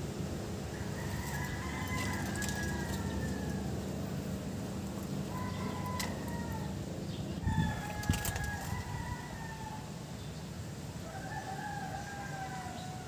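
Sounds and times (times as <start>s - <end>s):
rooster crowing: 0.7s - 4.0s, 5.2s - 6.8s, 7.4s - 10.0s, 11.0s - 13.0s.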